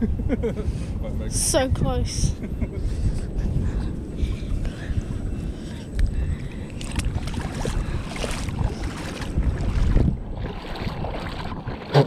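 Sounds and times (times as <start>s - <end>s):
wind buffeting microphone: 0.0s - 12.0s
shallow water splashing: 6.4s - 12.0s.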